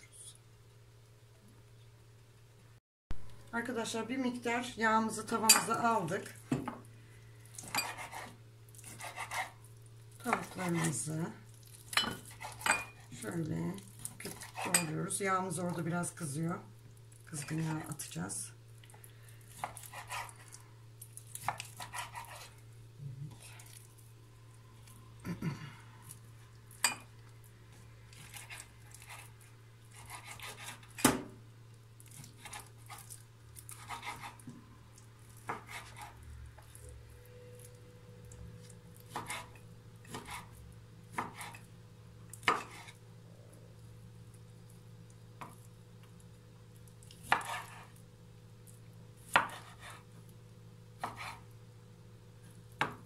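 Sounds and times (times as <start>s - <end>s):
knife slicing and scraping: 7.6s - 9.7s, 11.8s - 13.1s, 14.0s - 14.9s, 19.5s - 20.6s, 21.2s - 22.6s, 28.1s - 31.1s, 32.1s - 34.5s, 35.3s - 36.9s, 38.6s - 41.7s, 42.4s - 43.0s, 47.1s - 48.0s, 49.3s - 50.1s, 51.0s - 51.5s.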